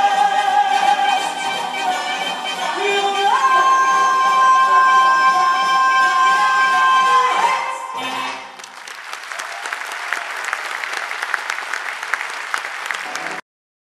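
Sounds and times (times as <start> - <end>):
audience applauding: 8.4 - 13.4.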